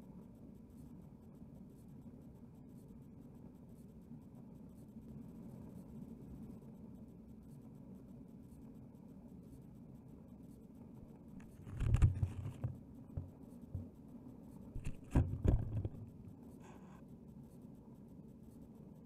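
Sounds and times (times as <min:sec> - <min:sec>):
muffled underwater knocking and scraping: 0:11.4 - 0:13.9, 0:14.8 - 0:17.0
thumps: 0:11.4 - 0:13.9, 0:14.8 - 0:16.2.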